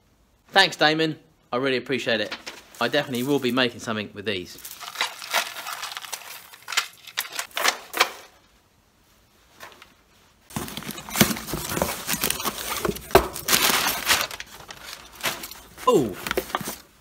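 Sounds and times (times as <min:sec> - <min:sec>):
packing paper rustling: 0:02.2 - 0:03.7, 0:04.5 - 0:08.5, 0:10.5 - 0:17.0.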